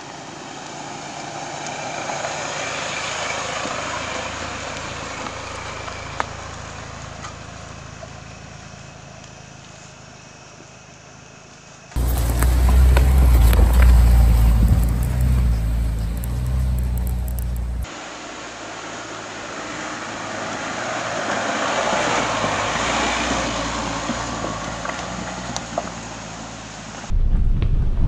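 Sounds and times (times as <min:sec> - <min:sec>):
car driving on dirt trail: 0:00.0 - 0:28.0
heavy low rumble: 0:12.0 - 0:17.9, 0:27.1 - 0:28.0.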